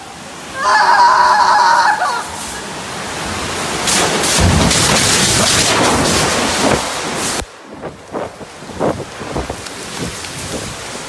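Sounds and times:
water gushing and splashing: 0.0s - 11.0s
high-pitched voice crying out: 0.6s - 2.4s.

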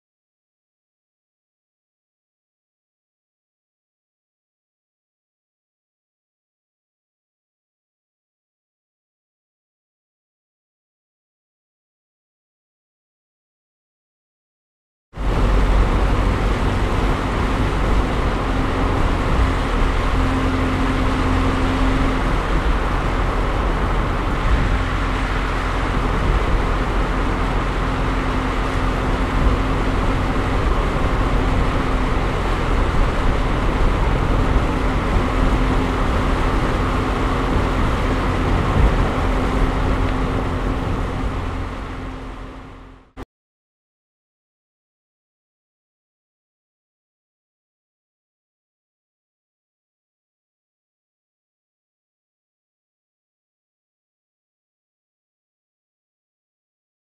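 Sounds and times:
jet cabin engine and airflow: 15.2s - 43.2s.

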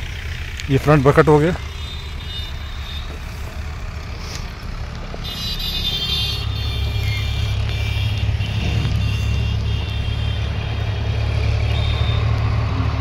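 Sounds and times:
tractor diesel engine running: 0.0s - 13.0s
high ringing tone: 5.3s - 10.2s.

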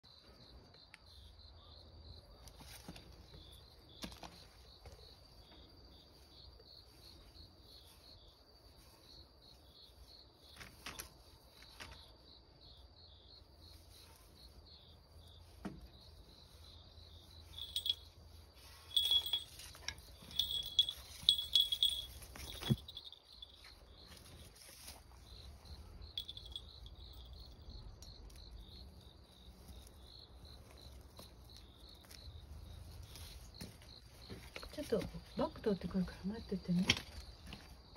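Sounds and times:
insects trilling: 0.1s - 37.9s
light clicks and rustles: 10.5s - 12.2s, 18.9s - 25.4s.

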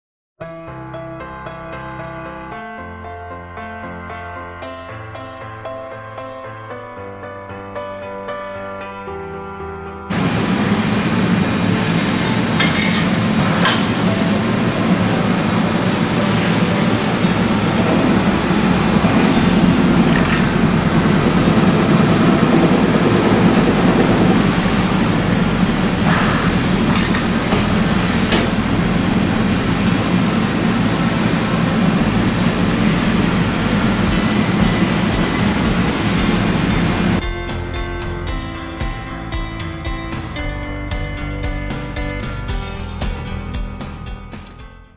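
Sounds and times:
tube forming machine rumbling: 10.1s - 37.3s
sharp machine clicks: 20.0s - 20.8s.

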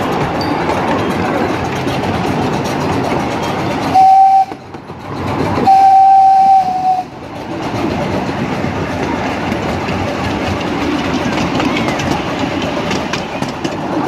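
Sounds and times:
train rumbling on track: 0.0s - 14.0s
steam locomotive whistle: 3.9s - 4.6s, 5.6s - 7.1s.

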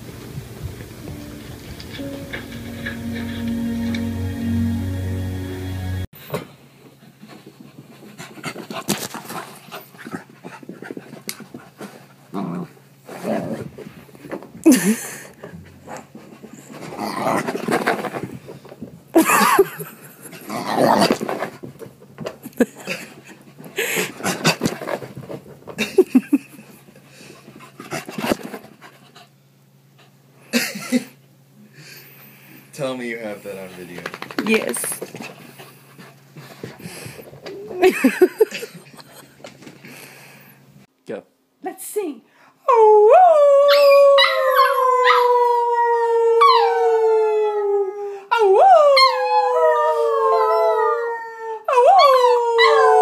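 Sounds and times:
music: 0.0s - 6.1s
dog panting: 7.0s - 12.2s.

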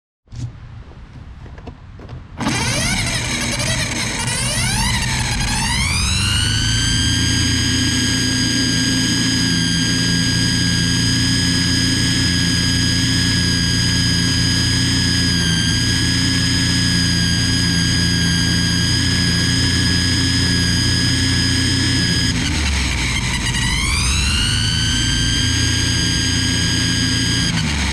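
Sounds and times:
string trimmer whining: 2.4s - 27.9s.

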